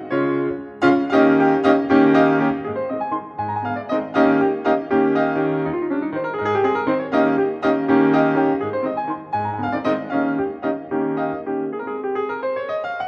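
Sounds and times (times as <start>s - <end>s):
lively piano music: 0.0s - 13.0s.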